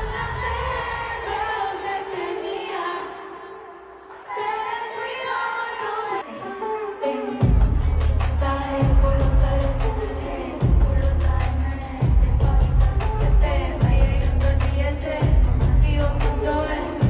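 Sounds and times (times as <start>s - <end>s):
live pop music sung notes: 0.0s - 17.0s
heavy bass beat: 7.4s - 17.0s.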